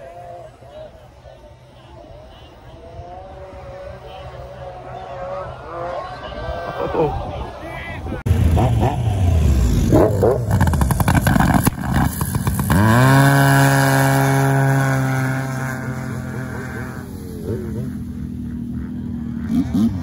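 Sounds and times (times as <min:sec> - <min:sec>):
racing snowmobile engines revving: 0:00.0 - 0:20.0.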